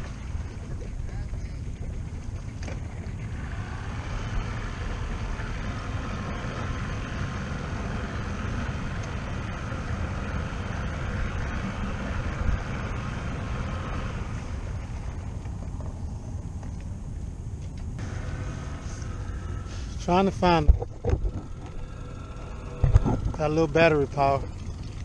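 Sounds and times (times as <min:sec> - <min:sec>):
wind buffeting microphone: 0:19.2 - 0:25.0.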